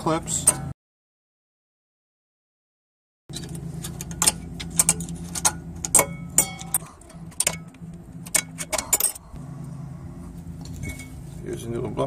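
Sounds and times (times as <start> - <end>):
metallic clicks and clinks: 3.3 - 9.2.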